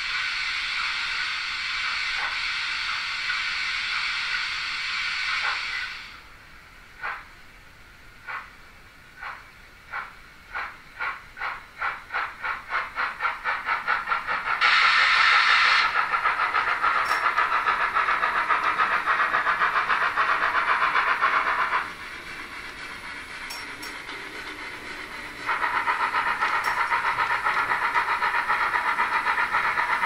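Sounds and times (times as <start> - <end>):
loud steam hiss: 0.0 - 6.4, 10.6 - 30.0
model steam locomotive chuffs: 0.0 - 30.0.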